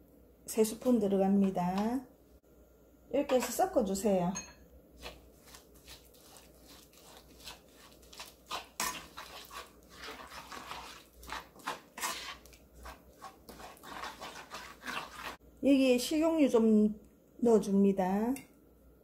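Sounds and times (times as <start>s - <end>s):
wooden spoon scraping a wok: 5.0s - 15.4s.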